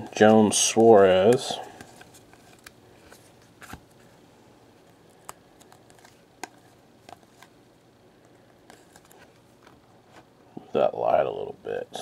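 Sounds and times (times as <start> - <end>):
trading cards clicking and rustling: 0.2 - 4.0, 4.8 - 7.6, 8.2 - 9.8.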